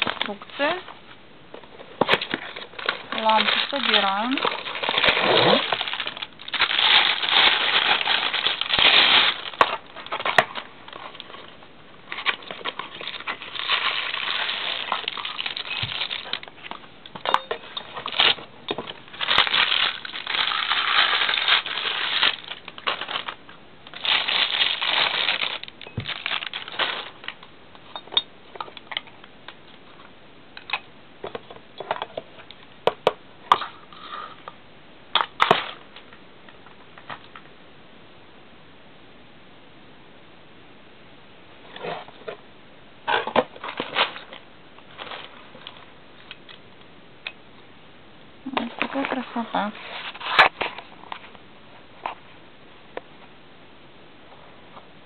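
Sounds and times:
plastic packaging crinkling: 0.0 - 0.8, 2.1 - 27.5, 43.3 - 46.5, 48.5 - 51.3.

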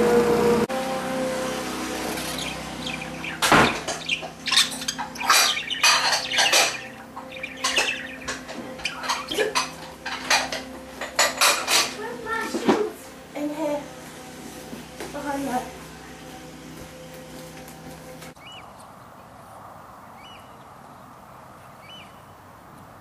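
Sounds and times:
budgerigar chattering: 2.2 - 10.4.

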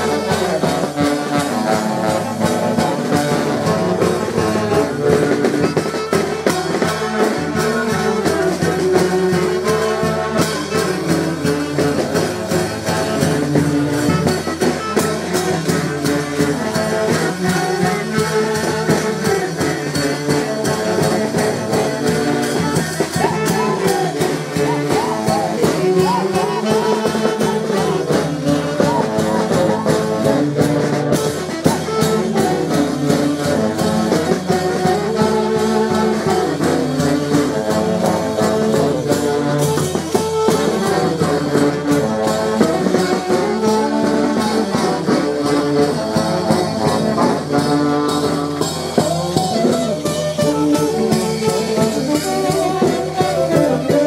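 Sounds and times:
cymbals: 0.0 - 54.0
saxophones playing melody: 0.0 - 54.0
bass drum beat: 21.9 - 30.3.

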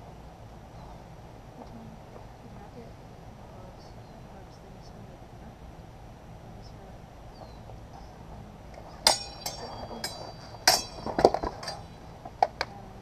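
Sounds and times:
steel swords clashing: 9.0 - 12.0.

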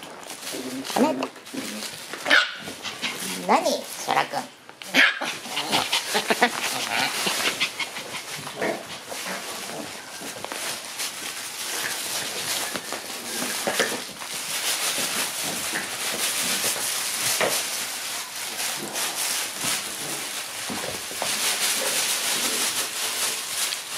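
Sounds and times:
nylon play tunnel rustling: 0.0 - 4.4, 5.2 - 23.9
claws skittering on smooth floor: 5.3 - 23.9.

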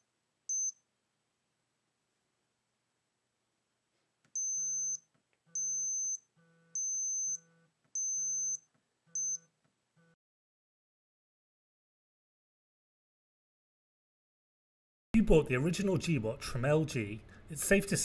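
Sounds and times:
high buzzing beep: 0.5 - 0.8, 4.4 - 10.2.

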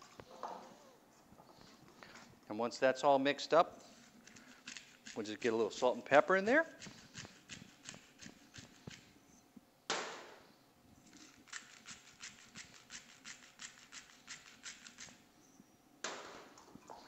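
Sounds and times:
pepper mill grinding: 4.3 - 9.1, 11.1 - 15.2.

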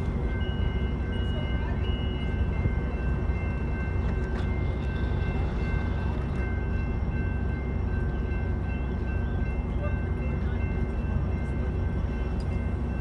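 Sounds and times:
train low rumble: 0.0 - 13.0.

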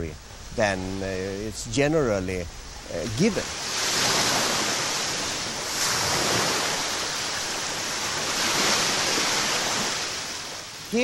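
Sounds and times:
surf breaking over rocks: 2.8 - 11.0.

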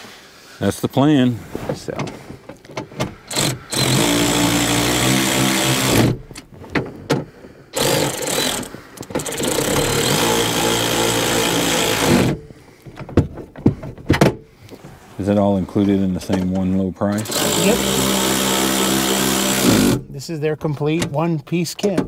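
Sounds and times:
power ratchet running: 3.3 - 6.4, 7.8 - 12.4, 17.2 - 20.0
knocks and clicks of metal: 5.6 - 10.2, 12.0 - 14.5.

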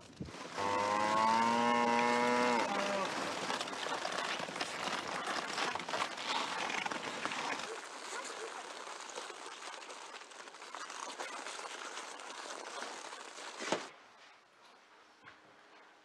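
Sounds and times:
cow mooing: 0.6 - 3.1.

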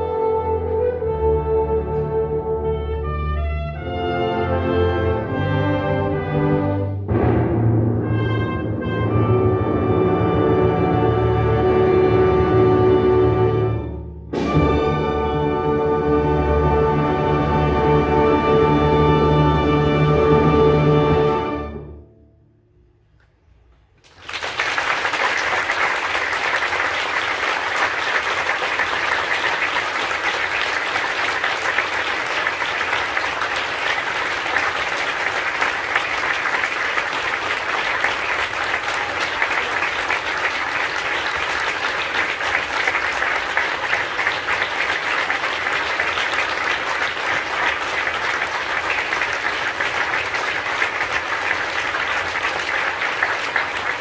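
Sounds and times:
audience applauding: 24.0 - 54.0.

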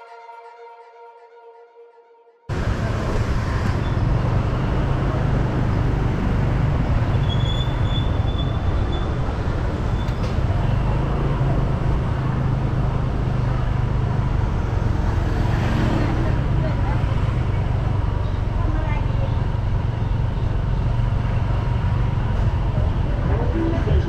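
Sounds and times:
street traffic: 2.5 - 24.0
vehicle engine and road rumble: 2.5 - 24.0
brief high squeak: 7.2 - 9.2.

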